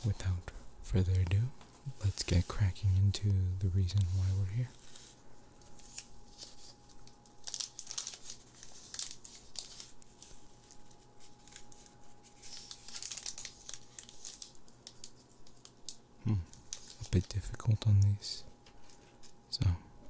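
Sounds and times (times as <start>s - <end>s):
foil pack crinkling: 3.9s - 17.8s, 18.6s - 19.4s.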